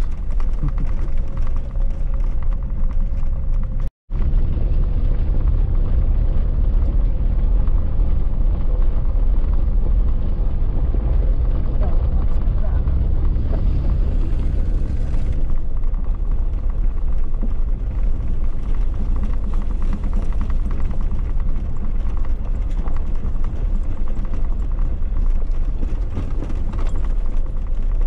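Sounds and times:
small gravel clicks and ticks: 0.0 - 3.9, 15.0 - 28.0
vehicle engine and tyres rumbling: 0.0 - 28.0.

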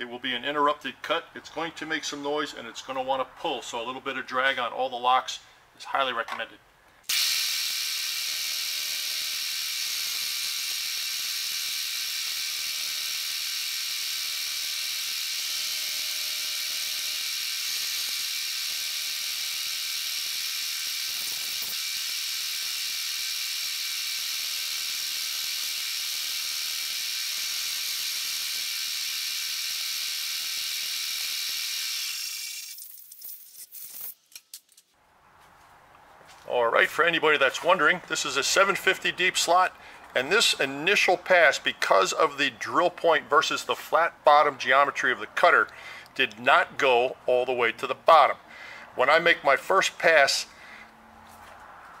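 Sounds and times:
end mill high-pitched whir: 7.1 - 32.8.

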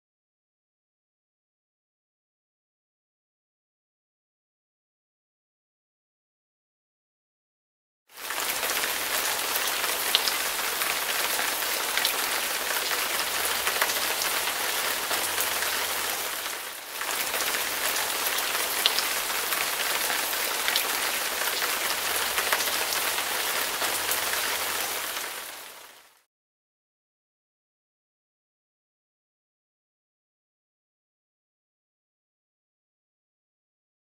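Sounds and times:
rain-like hiss: 8.2 - 26.3.

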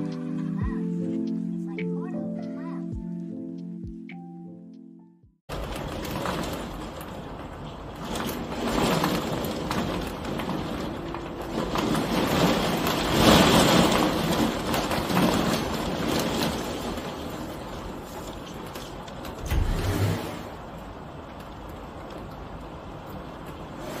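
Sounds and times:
low thunder rumble: 19.2 - 22.9.

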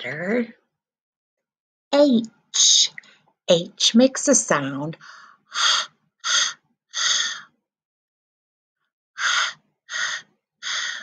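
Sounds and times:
woman breathing out puffs: 9.2 - 11.0.

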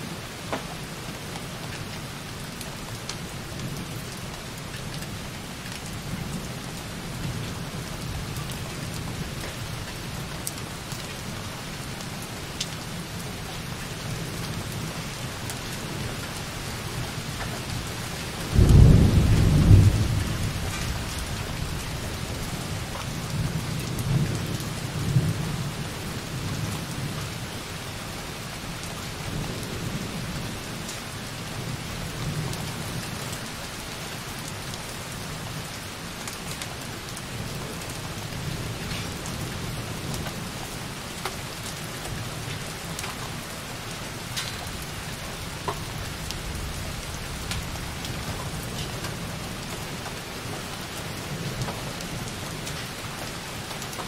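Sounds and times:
light rain on a window: 0.0 - 54.0
distant thunder rumbling: 18.5 - 22.0.

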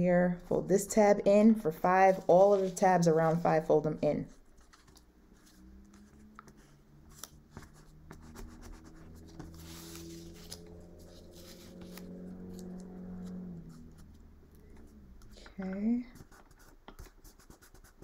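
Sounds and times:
paper being folded and creased: 1.9 - 3.6, 4.3 - 18.0
paper rustle: 2.0 - 3.5, 4.4 - 12.8.

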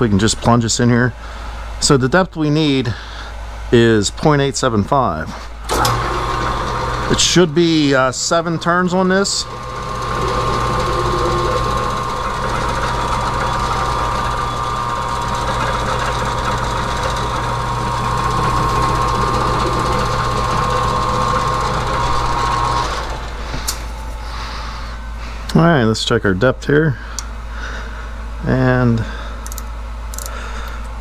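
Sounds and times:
metal lathe humming and whining: 5.7 - 23.6
end mill cutting metal: 5.7 - 23.8.

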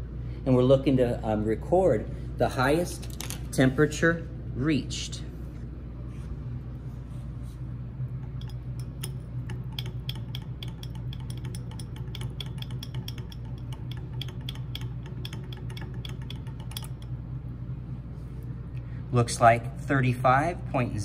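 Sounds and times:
steady low hum: 0.0 - 21.0
metal probe clicking against glass: 8.3 - 17.1.

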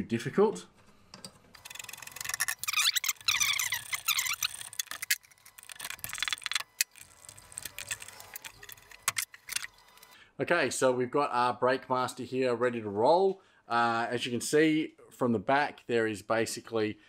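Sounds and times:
metal squeaking and scraping: 1.9 - 9.9.

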